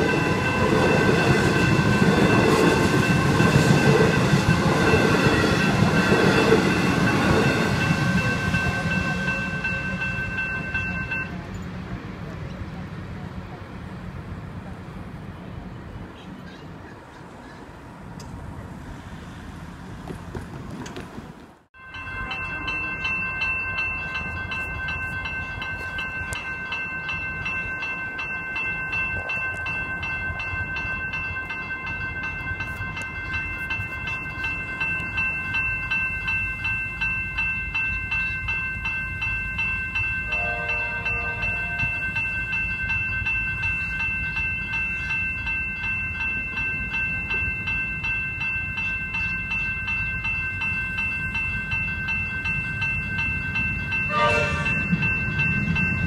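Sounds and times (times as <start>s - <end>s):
level crossing bells ringing: 0.0s - 13.8s, 21.8s - 56.0s
train horn: 40.3s - 42.1s, 54.1s - 55.0s.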